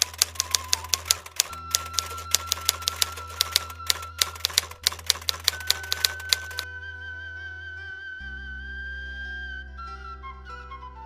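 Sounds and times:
typewriter keys clicking: 0.0s - 6.6s
soft background music: 0.0s - 11.0s.

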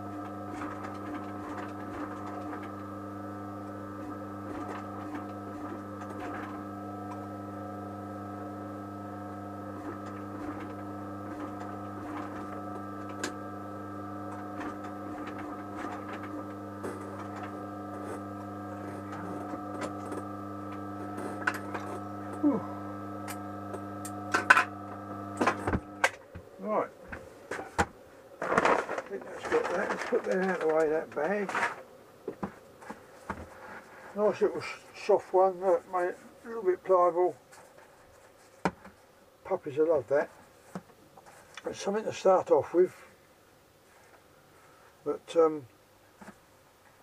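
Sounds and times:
steady machine hum: 0.0s - 37.4s.

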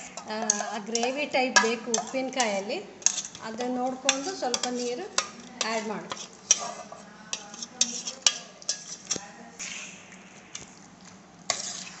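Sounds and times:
spoon squelching through paste: 1.9s - 12.0s.

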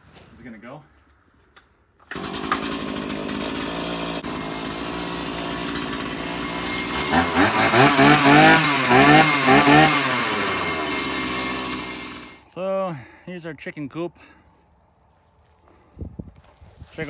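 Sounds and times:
chainsaw engine revving: 2.0s - 12.4s.

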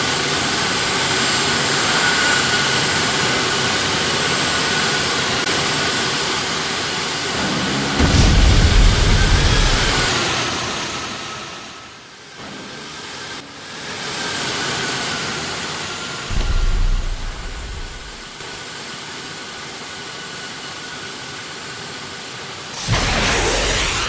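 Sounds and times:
fighter jet roar with whine: 0.0s - 24.0s
low rumble: 8.0s - 10.2s, 16.3s - 18.4s, 22.8s - 24.0s.

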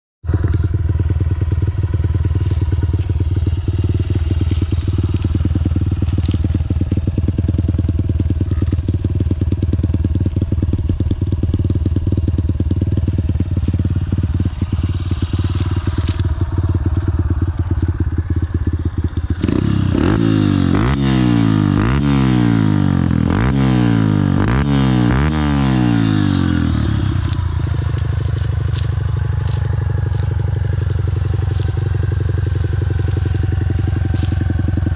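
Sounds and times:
motorcycle engine idling and revving: 0.2s - 34.9s
corn stalks crunching underfoot: 2.4s - 7.8s, 8.4s - 11.6s, 12.8s - 20.5s, 25.8s - 34.9s.

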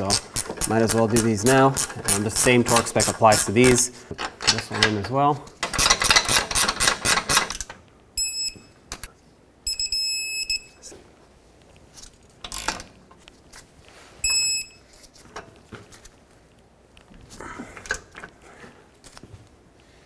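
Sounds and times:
hand ratchet clicking: 0.0s - 4.9s, 5.6s - 7.7s.

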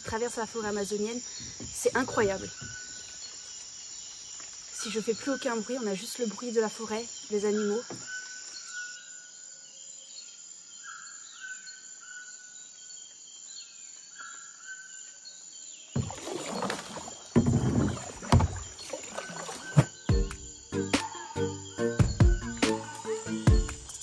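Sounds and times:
high insect drone: 15.3s - 24.0s
kayak paddle splashing: 16.0s - 21.4s.

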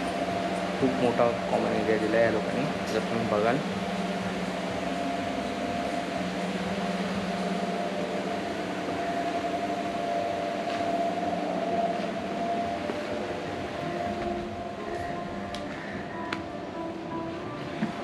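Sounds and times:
electric fans humming: 0.0s - 18.0s.

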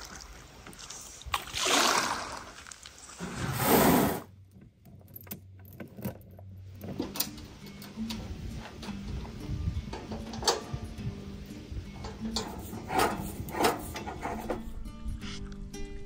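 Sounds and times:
paddle swishing through water: 0.0s - 4.3s.

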